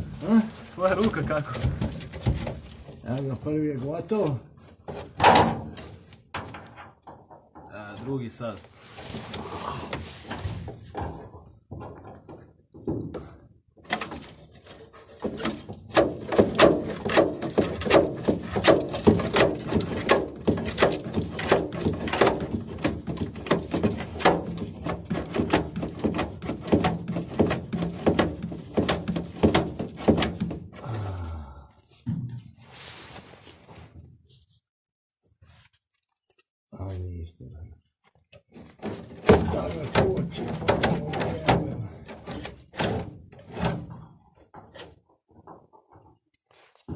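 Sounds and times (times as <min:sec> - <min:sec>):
scattered knocks: 0:15.2 - 0:30.6.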